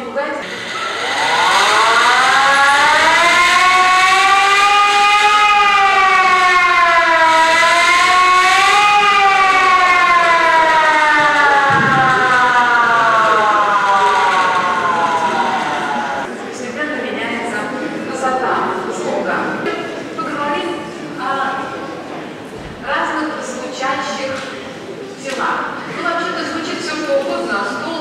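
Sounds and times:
hand-cranked mechanical siren: 0.4s - 16.3s.

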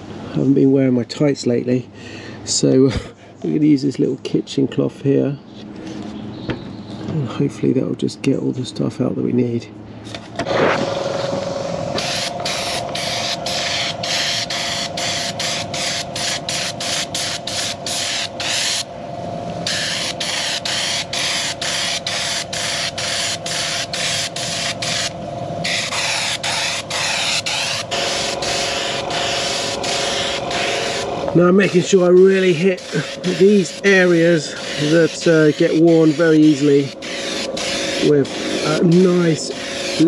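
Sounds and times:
steady hum: 5.4s - 40.0s
spray gun hissing: 11.4s - 18.9s, 19.6s - 40.0s.

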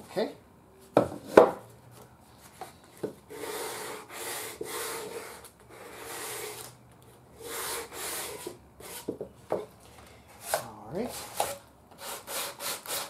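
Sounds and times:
sandpaper rubbing on wood: 7.4s - 9.1s.

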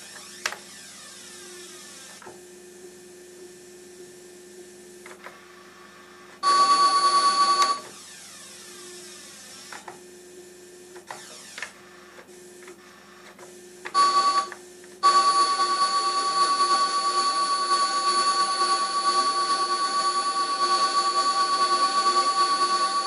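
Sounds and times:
loud buzzing tone: 6.4s - 9.8s, 13.9s - 23.0s.

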